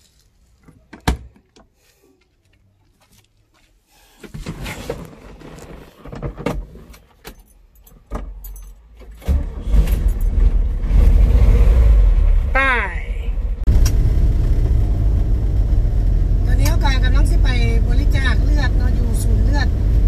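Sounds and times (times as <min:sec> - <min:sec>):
keys jangling: 0:07.3 - 0:08.8
car engine cranking and rumbling: 0:08.0 - 0:20.0.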